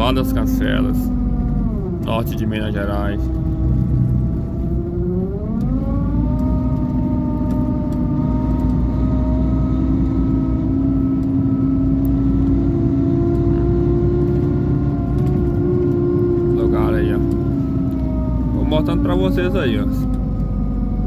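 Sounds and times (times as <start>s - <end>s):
rising whine: 0.0s - 21.0s
vehicle engine and road rumble: 0.0s - 21.0s.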